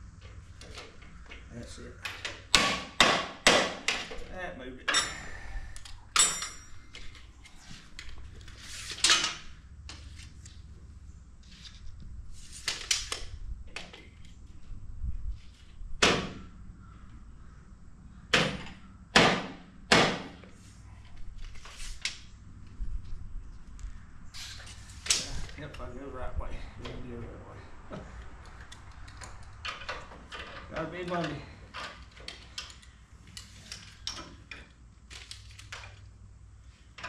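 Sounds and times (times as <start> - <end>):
wrench clanking on metal: 4.9 - 5.4, 6.1 - 6.8.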